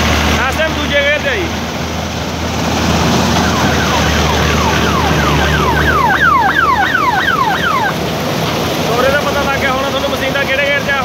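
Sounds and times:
combine harvester engine hum: 0.0s - 11.0s
falling high-pitched sweeps: 3.1s - 8.0s.

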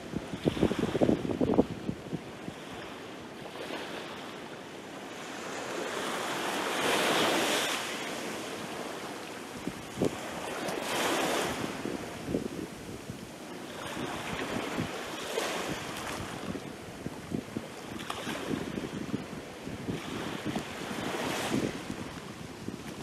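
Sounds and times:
wind buffeting microphone: 0.0s - 2.9s, 9.5s - 23.0s
sea waves breaking: 0.0s - 23.0s.

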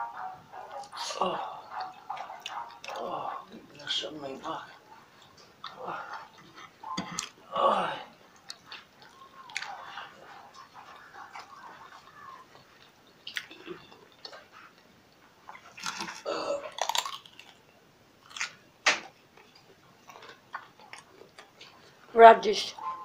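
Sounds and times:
chewing and crunching radish: 8.4s - 14.8s, 15.5s - 18.6s, 19.4s - 22.0s.

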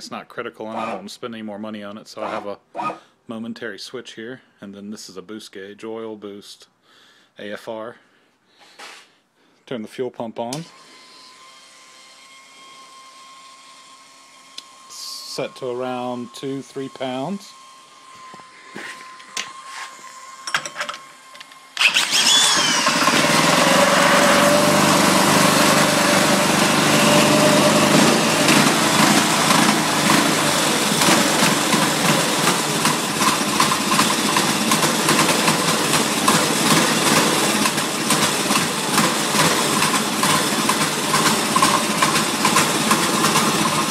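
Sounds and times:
falling whine: 14.6s - 34.4s
small engine idling: 21.8s - 43.9s.

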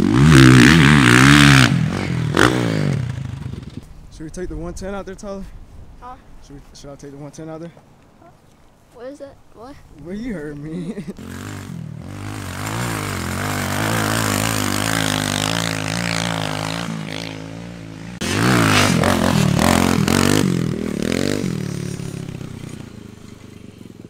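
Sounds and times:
small motorbike engine revving: 0.0s - 3.8s, 11.1s - 24.0s.

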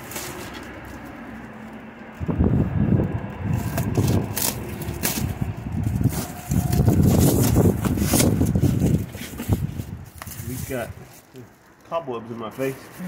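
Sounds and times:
packing tape ripping: 0.0s - 2.3s, 3.4s - 11.5s
cardboard scraping and crackling: 0.0s - 13.0s.

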